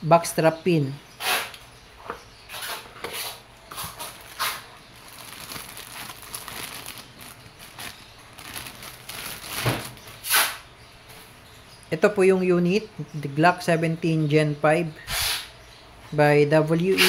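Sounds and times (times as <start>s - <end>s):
plastic bag crinkling: 3.8s - 10.2s.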